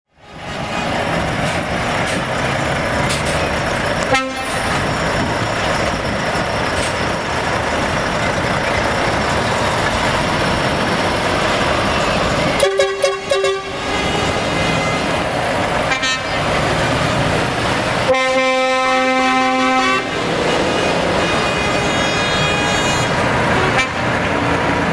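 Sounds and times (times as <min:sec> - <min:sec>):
truck horns: 0:00.2 - 0:05.2, 0:11.4 - 0:24.3
diesel trucks driving past: 0:00.2 - 0:24.9.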